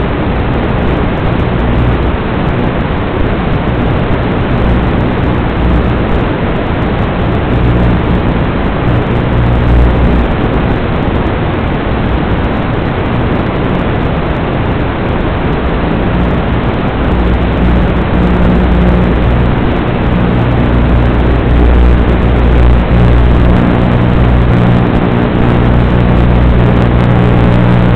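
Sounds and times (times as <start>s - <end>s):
quadcopter rushing drone: 3.8s - 10.9s, 15.7s - 27.9s.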